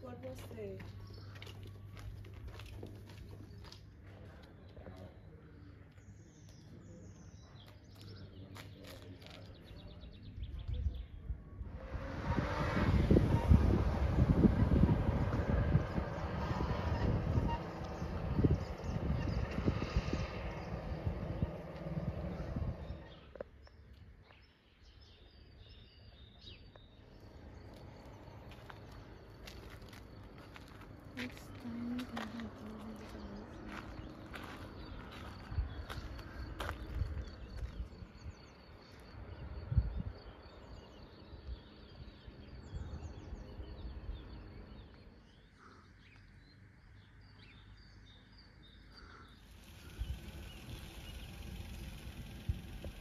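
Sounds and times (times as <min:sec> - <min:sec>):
small birds chirping: 0:00.0 - 0:11.8, 0:13.1 - 0:53.0
low rumble: 0:10.4 - 0:23.4
insect trill: 0:48.7 - 0:53.0.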